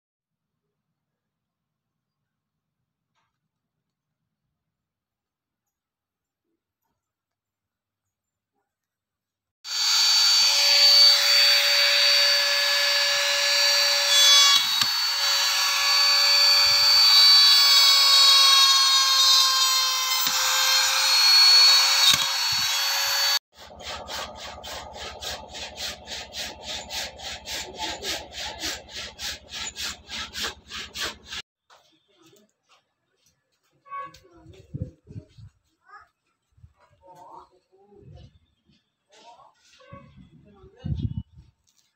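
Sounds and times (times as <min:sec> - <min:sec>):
electric router cutting wood: 0:09.7 - 0:31.4.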